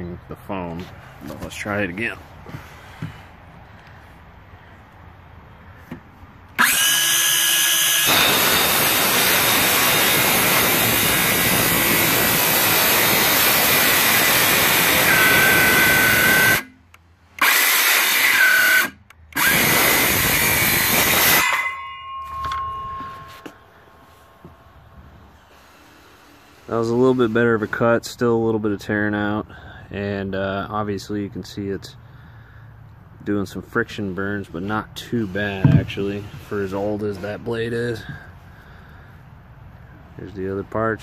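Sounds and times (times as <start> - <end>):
cordless saw cutting wood: 6.6 - 16.8, 17.4 - 23.5.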